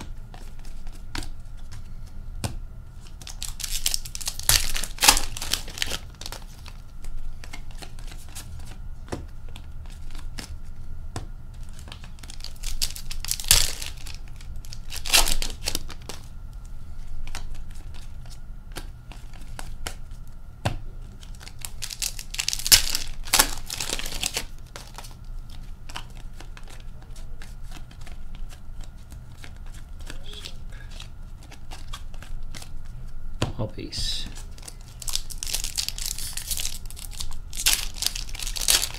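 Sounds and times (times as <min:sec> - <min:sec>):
card pack wrappers tearing: 0:03.0 - 0:08.8, 0:11.6 - 0:16.3, 0:21.2 - 0:32.7, 0:34.3 - 0:38.9
cards rustling: 0:03.0 - 0:10.7, 0:11.5 - 0:16.3, 0:21.0 - 0:33.0, 0:34.1 - 0:38.9.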